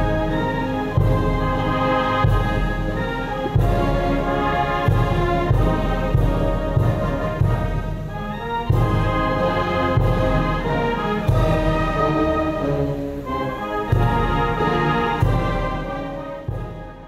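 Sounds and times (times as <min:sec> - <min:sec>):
brass band playing: 0:00.0 - 0:17.0
deep drum strokes: 0:00.0 - 0:17.0.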